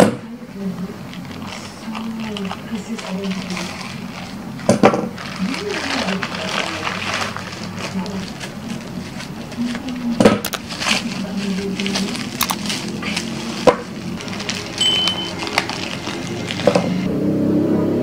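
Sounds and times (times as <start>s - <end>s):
bubble wrap crinkling: 0.6s - 17.1s
sharp clicks and snaps: 10.4s - 10.6s, 12.4s - 12.7s
scissors snipping: 12.4s - 12.8s.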